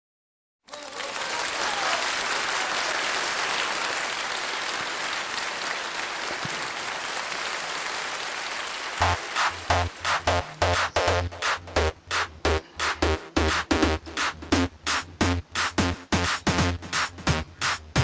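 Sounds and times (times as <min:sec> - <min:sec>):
crowd applauding: 0:00.6 - 0:11.7.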